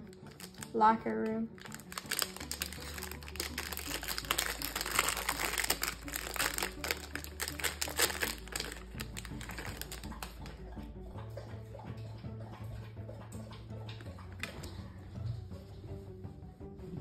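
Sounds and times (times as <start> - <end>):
plastic wrapper crinkling: 0.0 - 0.8, 1.5 - 10.4.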